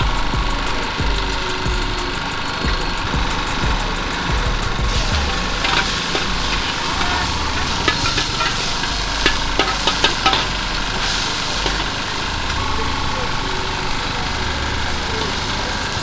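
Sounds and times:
steady low rumble: 0.0 - 16.0
metal spatula scraping wok: 4.9 - 12.5
prawns sizzling in hot oil: 4.9 - 16.0.

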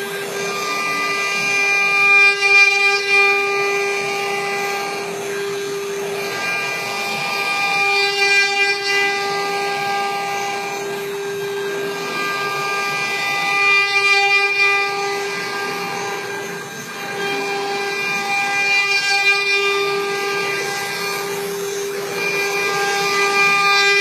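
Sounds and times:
router rough hiss: 0.0 - 24.0
wood carving router whine: 0.0 - 24.0.

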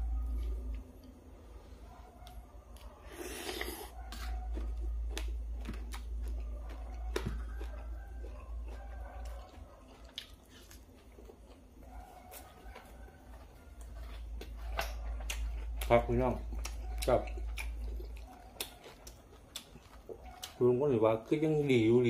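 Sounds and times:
man chewing wetly: 1.9 - 21.7.

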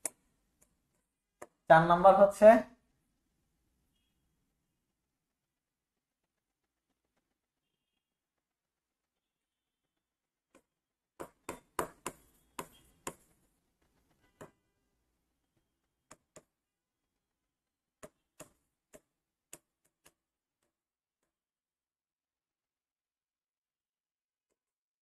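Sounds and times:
chalk tapping on blackboard: 10.5 - 14.6, 16.0 - 16.6, 18.0 - 20.7.

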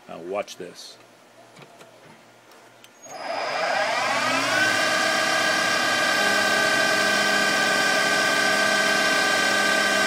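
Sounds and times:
metal lathe whining: 3.1 - 10.0.

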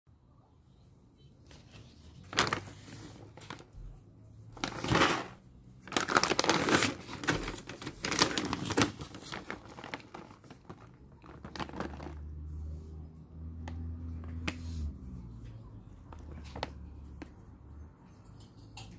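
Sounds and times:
bag of dry food crinkling: 1.6 - 3.9, 4.6 - 12.4.

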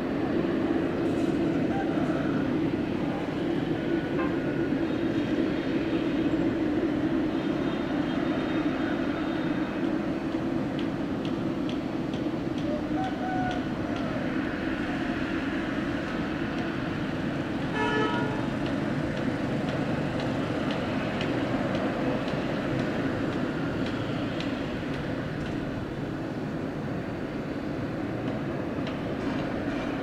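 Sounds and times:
jet engines rumbling: 0.0 - 30.0
horn-like tone: 17.7 - 18.5.

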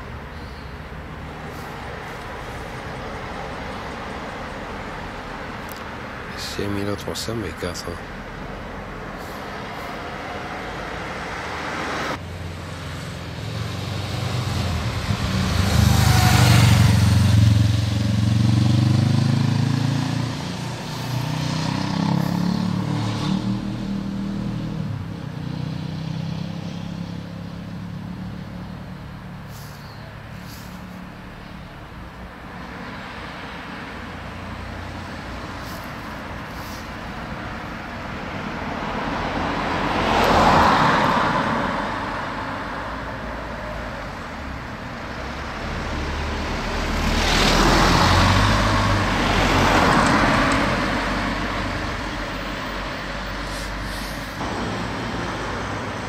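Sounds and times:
background traffic: 0.0 - 56.0
vehicle driving past: 9.2 - 28.0, 45.2 - 56.0.

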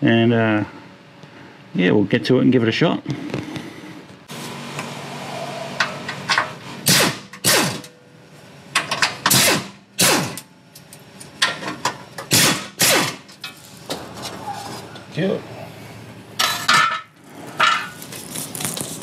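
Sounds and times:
pneumatic impact wrench rattling: 5.8 - 8.0, 8.7 - 10.5, 11.4 - 14.1.

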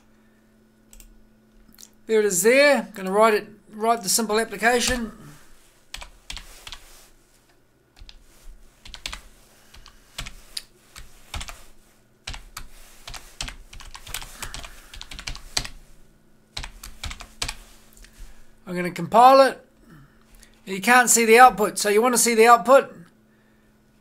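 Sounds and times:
typing on computer keyboard: 5.9 - 6.8, 8.8 - 11.6, 12.3 - 15.8, 16.6 - 17.6.

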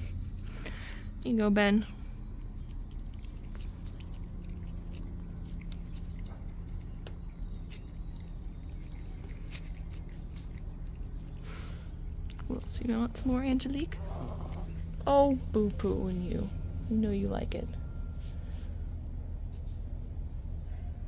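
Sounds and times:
steady low hum: 0.0 - 21.0
cat licking wet clicks: 2.4 - 13.0.

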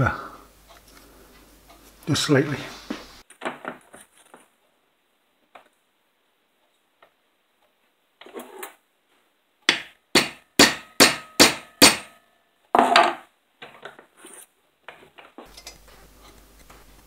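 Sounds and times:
hammer striking metal: 9.7 - 13.2.

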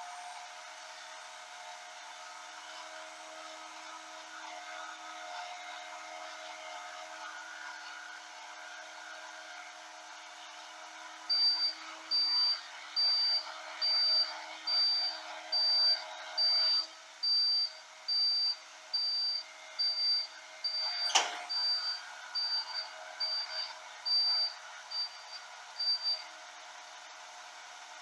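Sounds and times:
electronic warning beeper: 11.3 - 26.2.

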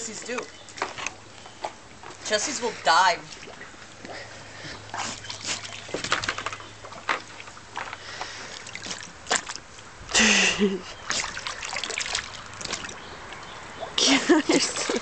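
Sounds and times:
water splashing in a pool: 1.8 - 15.0.

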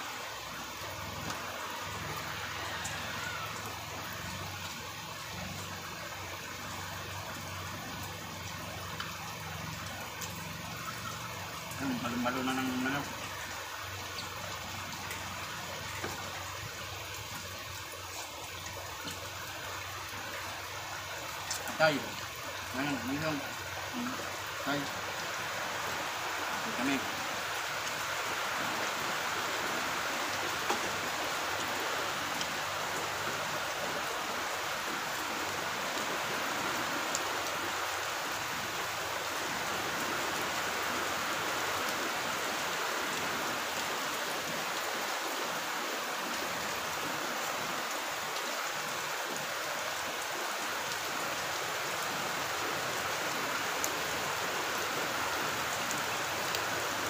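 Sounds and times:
steady rain falling: 0.0 - 57.0.

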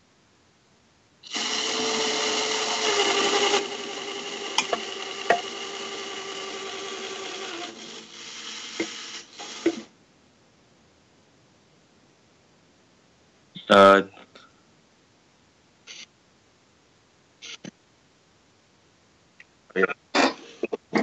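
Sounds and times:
electric motor whine: 1.2 - 9.9.

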